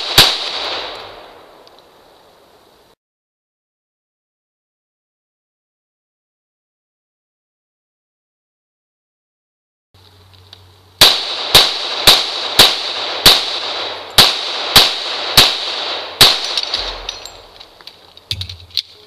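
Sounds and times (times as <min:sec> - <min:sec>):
rapid gunshots: 0:00.0 - 0:00.9, 0:11.0 - 0:17.0
steel target plate clanging: 0:16.4 - 0:18.9.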